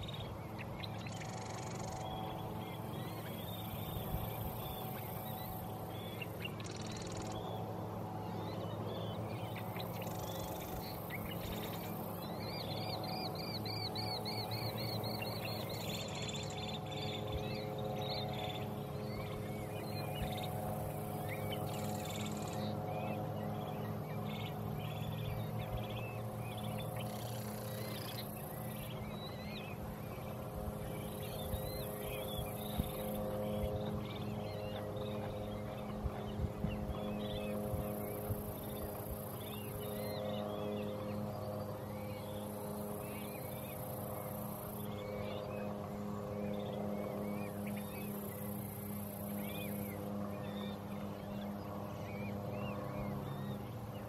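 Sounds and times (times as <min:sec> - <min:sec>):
birds chirping and calling: 0:00.0 - 0:07.6
steady low hum: 0:00.0 - 0:54.0.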